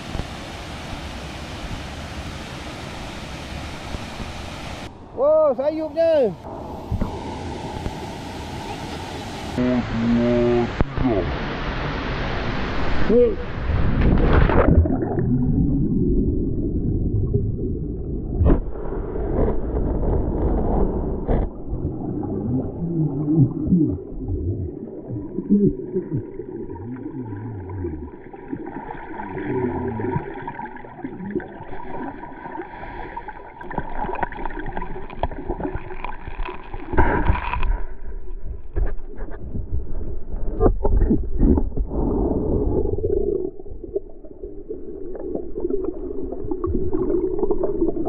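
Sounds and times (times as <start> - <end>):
water surface rushing: 0.0 - 38.0
faint steady tone: 6.2 - 12.0
muffled underwater rumbling: 12.6 - 48.0
bubbling gurgles: 14.4 - 18.4, 21.2 - 37.7, 40.6 - 48.0
sharp knocks underwater: 18.3 - 22.4, 33.6 - 42.0.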